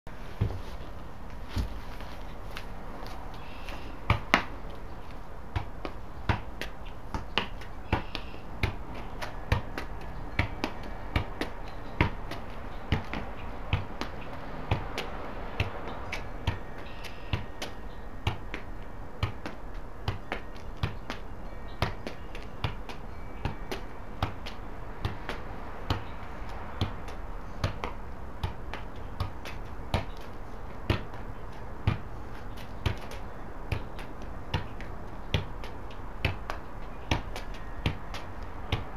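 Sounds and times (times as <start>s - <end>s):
ball being kicked taps: 2.5s - 4.8s, 5.5s - 21.2s, 26.8s - 38.9s.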